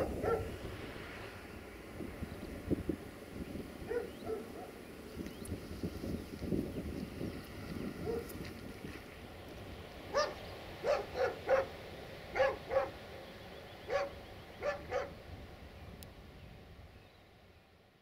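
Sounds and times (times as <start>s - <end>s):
dog barking: 0.0s - 0.6s, 3.9s - 4.8s, 8.0s - 8.3s, 10.1s - 13.0s, 13.9s - 15.2s.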